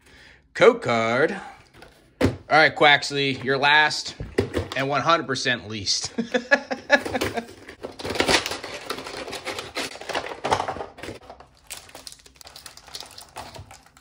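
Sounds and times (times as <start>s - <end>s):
cardboard and plastic crinkling: 6.9s - 14.0s.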